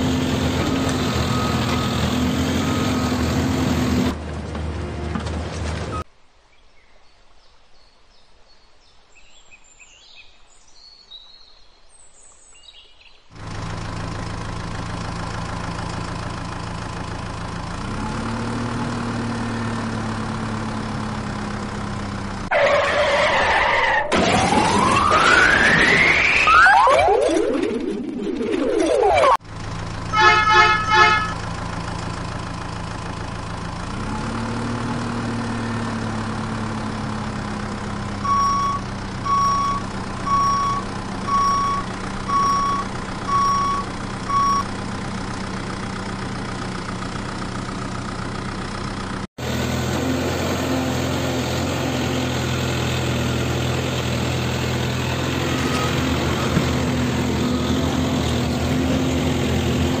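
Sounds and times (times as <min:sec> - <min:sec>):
diesel truck engine revving: 0:00.0 - 0:06.1, 0:13.3 - 0:26.6, 0:29.4 - 1:00.0
engine running steadily: 0:13.3 - 0:22.5, 0:29.4 - 1:00.0
truck horn blasts: 0:30.1 - 0:31.4, 0:38.2 - 0:44.7
reversing beeps: 0:38.2 - 0:44.7.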